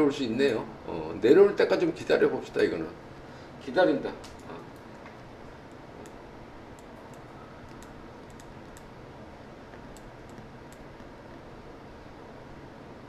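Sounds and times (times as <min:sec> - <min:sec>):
faint room hum: 0:00.0 - 0:13.0
keyboard and mouse clicks: 0:06.8 - 0:08.9, 0:09.7 - 0:11.4.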